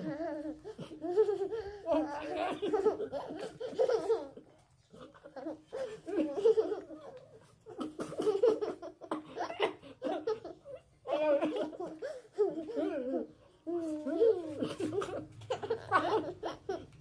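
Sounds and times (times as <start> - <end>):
boy laughing: 0.0 - 4.6, 14.0 - 17.0.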